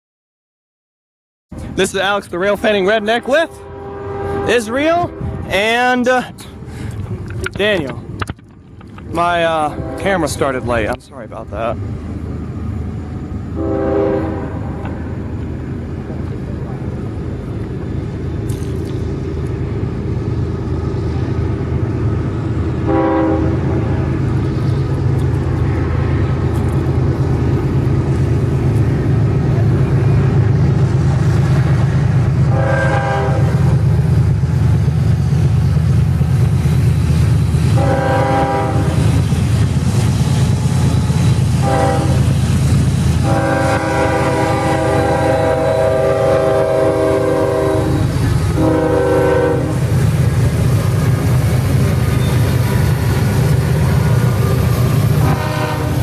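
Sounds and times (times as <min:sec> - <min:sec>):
diesel locomotive rumble: 0:01.5 - 0:56.0
locomotive horn blasts: 0:02.9 - 0:05.9, 0:09.7 - 0:10.8, 0:13.6 - 0:15.2, 0:22.8 - 0:24.1, 0:32.5 - 0:33.6, 0:37.8 - 0:39.0, 0:41.6 - 0:42.3, 0:43.2 - 0:49.9, 0:55.2 - 0:56.0.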